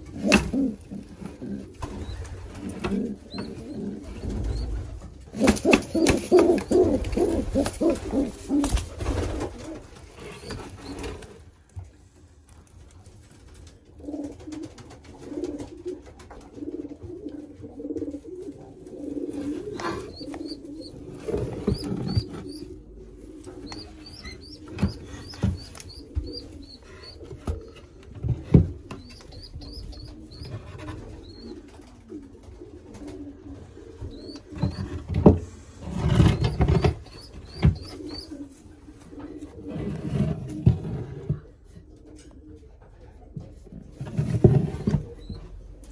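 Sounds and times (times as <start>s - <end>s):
pigeons cooing: 0.0s - 11.7s, 14.0s - 45.9s
knocks and rustles in nest boxes: 19.2s - 31.9s, 34.1s - 38.4s, 42.8s - 45.6s.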